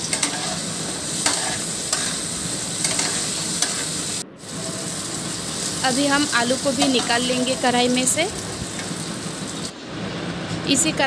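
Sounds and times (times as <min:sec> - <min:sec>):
metal spatula scraping a pan: 0:00.0 - 0:02.2
potatoes sizzling in hot oil: 0:00.0 - 0:09.7.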